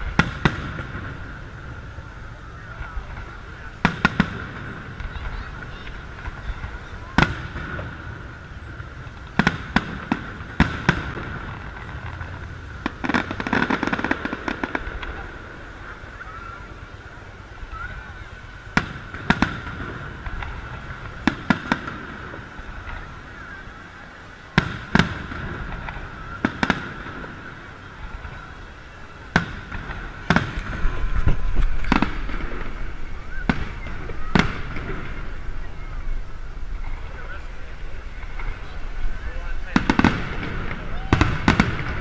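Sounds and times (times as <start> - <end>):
crackling firework pops: 0.0 - 1.8, 2.6 - 16.4, 18.7 - 23.8, 24.5 - 42.0
firework shells bursting: 24.5 - 35.7, 36.6 - 42.0.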